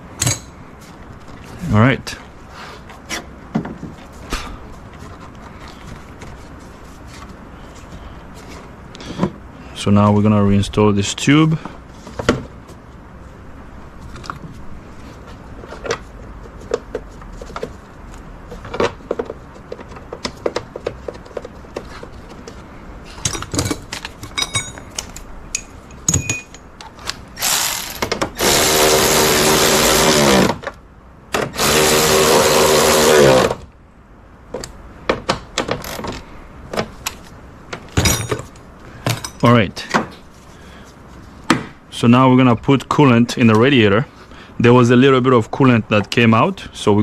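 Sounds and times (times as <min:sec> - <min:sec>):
tools clicking and knocking: 0:00.2 - 0:00.5, 0:23.2 - 0:27.2
power drill running: 0:27.4 - 0:30.6, 0:31.5 - 0:33.6.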